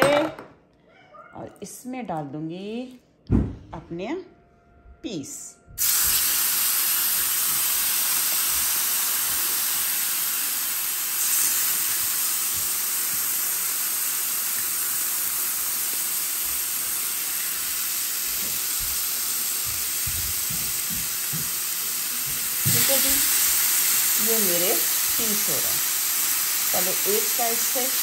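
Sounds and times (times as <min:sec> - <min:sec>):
chicken sizzling on a grill: 0:05.8 - 0:28.0.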